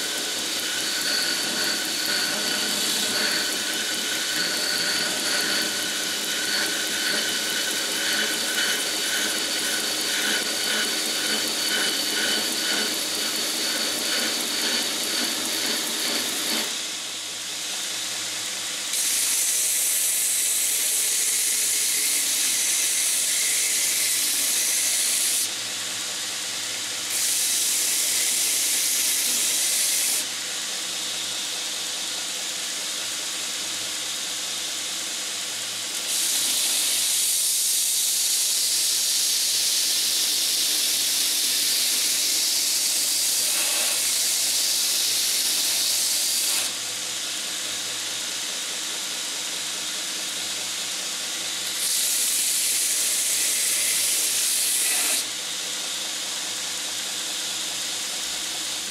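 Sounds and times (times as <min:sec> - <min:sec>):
belt sander running: 0:00.0 - 0:17.4
high hissing grinding: 0:00.0 - 0:17.4, 0:27.1 - 0:30.4, 0:36.0 - 0:46.8.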